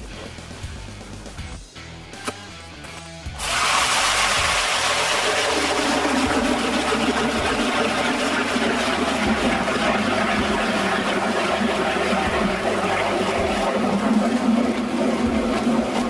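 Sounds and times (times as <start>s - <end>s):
power ice auger boring: 3.4s - 16.0s.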